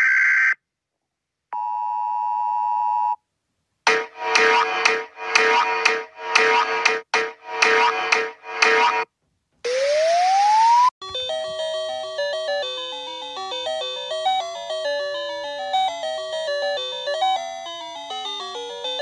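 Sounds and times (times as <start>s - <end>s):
rising whistle-like tone: 9.7s - 10.9s
chiming bell-like melody: 11.0s - 19.0s.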